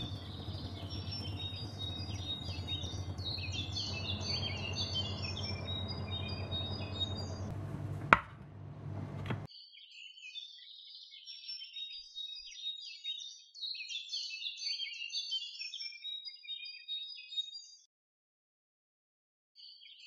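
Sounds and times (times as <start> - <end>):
birds chirping: 0.0 - 9.5.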